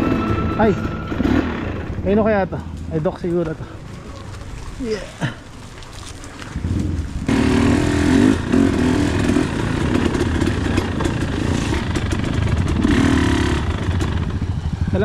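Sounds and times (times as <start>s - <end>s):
dirt bike engine revving: 0.0s - 2.3s, 6.6s - 15.0s.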